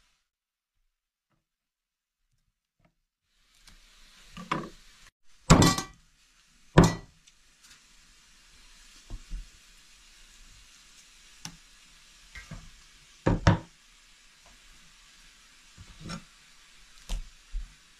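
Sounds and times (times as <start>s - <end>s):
light room hiss: 3.3s - 17.9s
kitchen knocks: 5.5s - 5.9s, 13.3s - 13.7s.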